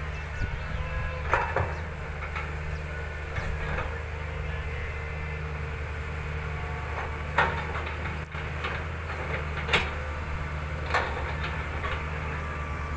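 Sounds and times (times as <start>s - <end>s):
excavator diesel engine running: 0.0s - 12.9s.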